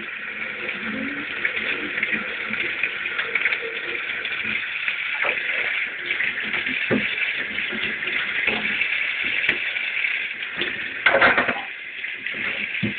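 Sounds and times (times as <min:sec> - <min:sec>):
tap running into metal sink: 0:10.6 - 0:11.7.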